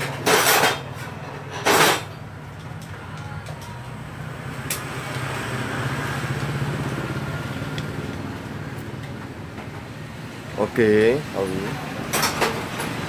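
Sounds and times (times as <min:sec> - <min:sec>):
vehicle engine running: 0:03.8 - 0:10.3.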